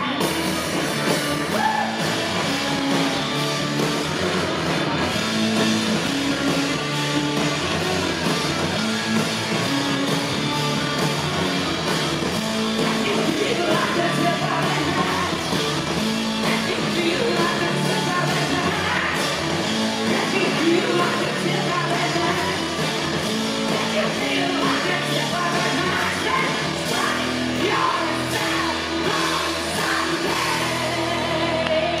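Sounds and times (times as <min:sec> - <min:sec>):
drums: 0:00.0 - 0:32.0
electric guitar: 0:00.0 - 0:32.0
man singing lead vocal: 0:12.8 - 0:15.4, 0:16.4 - 0:19.4, 0:20.0 - 0:22.6, 0:23.7 - 0:32.0.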